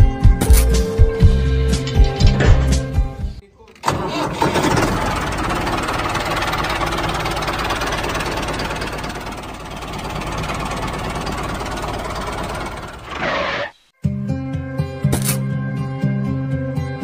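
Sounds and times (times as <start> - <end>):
tractor engine chugging: 3.8 - 13.3.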